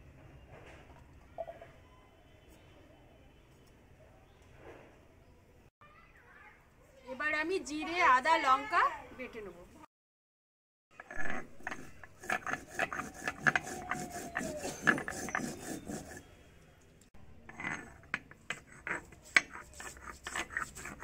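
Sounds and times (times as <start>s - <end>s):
stone roller grinding on stone: 10.9s - 16.4s, 17.2s - 21.0s.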